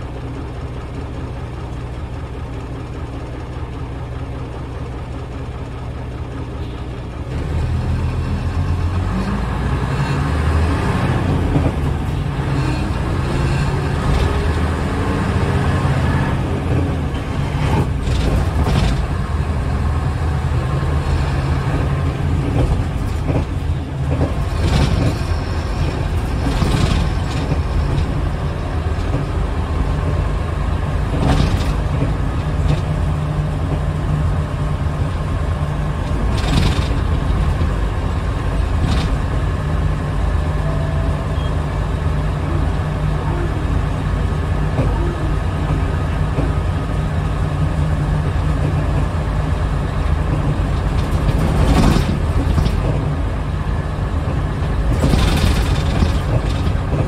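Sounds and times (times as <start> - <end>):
diesel bus engine drone: 0.0 - 57.0
road noise: 0.0 - 57.0
knocks and rattles: 11.1 - 39.6, 50.0 - 53.3, 54.2 - 57.0.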